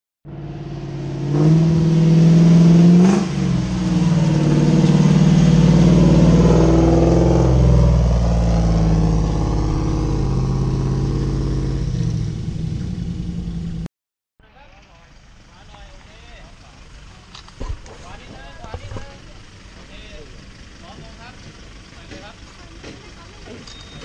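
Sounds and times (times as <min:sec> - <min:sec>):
pickup truck engine revving: 0:00.3 - 0:13.9.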